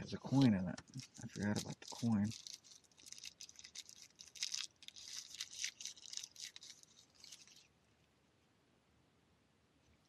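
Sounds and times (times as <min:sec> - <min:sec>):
wrapper crinkling: 0:00.3 - 0:07.7.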